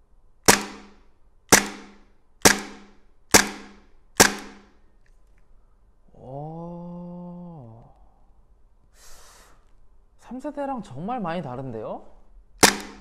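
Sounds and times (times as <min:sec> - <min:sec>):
airsoft pistol shots: 0:00.4 - 0:04.8, 0:12.6 - 0:13.0.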